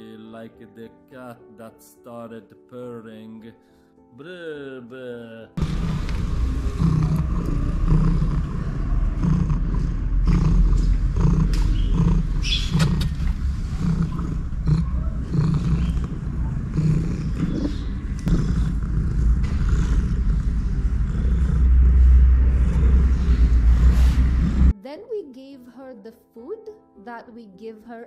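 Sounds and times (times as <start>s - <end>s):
cat purring: 5.6s - 24.8s.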